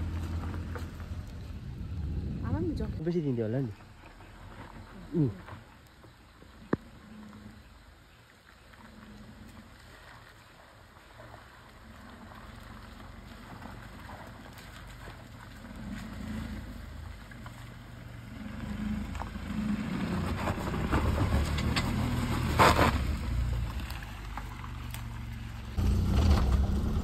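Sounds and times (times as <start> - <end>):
tyres crunching on gravel: 0.0 - 2.0, 8.2 - 27.0
car engine running low: 0.0 - 27.0.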